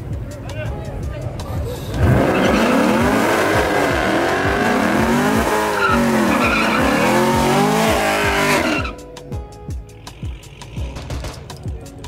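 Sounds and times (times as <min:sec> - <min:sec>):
car engine revving: 0:01.6 - 0:09.0
tyres squealing: 0:01.7 - 0:09.0.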